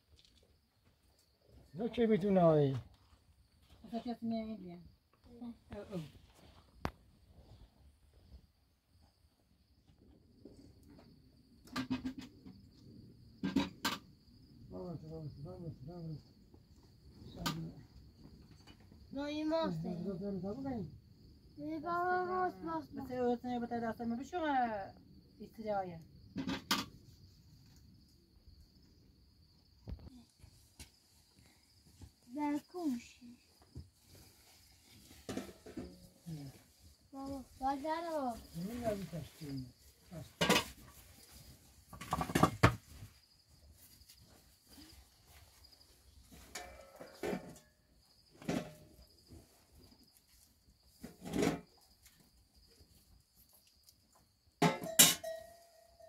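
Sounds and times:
crickets chirring: 0.0 - 56.0
metal cookware clattering: 54.6 - 55.6.

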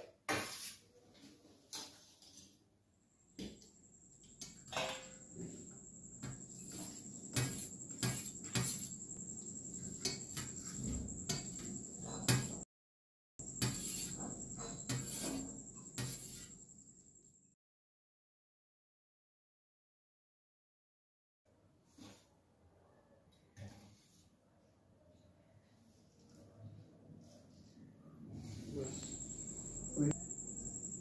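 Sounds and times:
high-pitched whine: 28.7 - 31.0.

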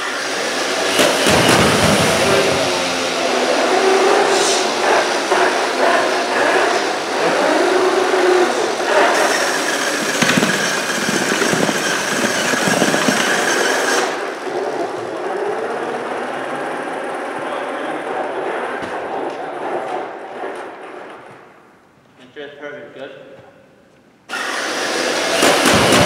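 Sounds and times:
steady whine: 0.0 - 21.5
robot electric motors running: 7.1 - 17.6, 24.3 - 26.0.

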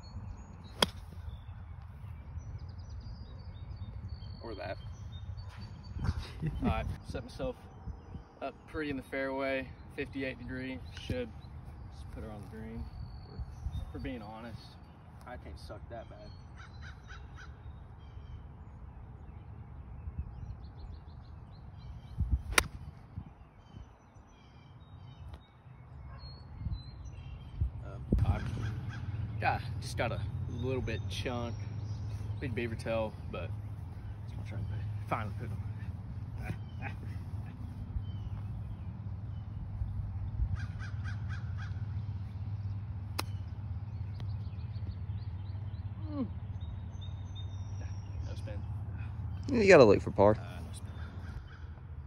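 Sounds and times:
birds chirping: 0.0 - 52.0
golf club striking ball: 0.8 - 1.1, 22.5 - 22.8, 43.1 - 43.5.

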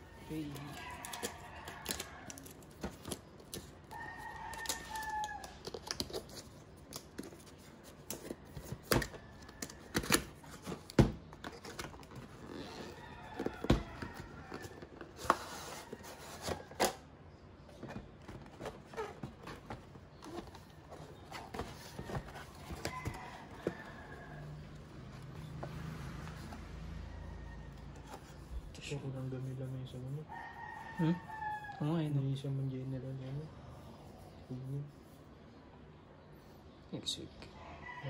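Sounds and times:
box and accessories being handled: 0.0 - 26.8.

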